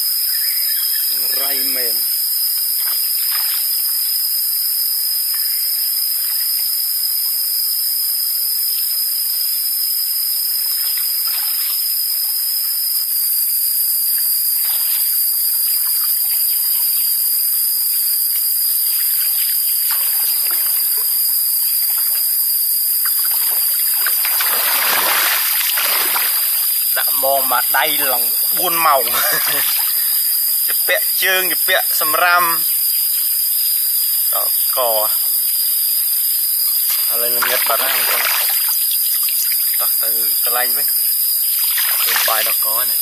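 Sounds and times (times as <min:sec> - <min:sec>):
shrill insect drone: 0:00.0 - 0:43.0
water splashing and sloshing: 0:18.9 - 0:21.2, 0:23.0 - 0:26.7, 0:36.9 - 0:39.8, 0:41.6 - 0:42.7.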